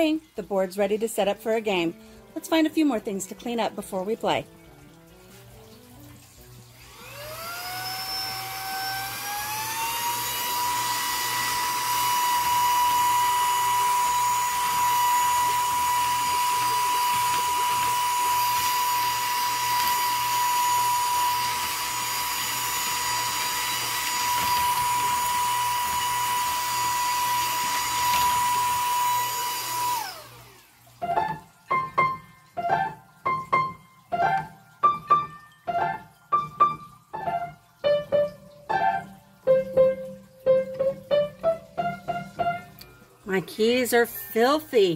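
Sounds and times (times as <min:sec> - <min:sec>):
vacuum cleaner motor whine: 0:06.6 - 0:32.0.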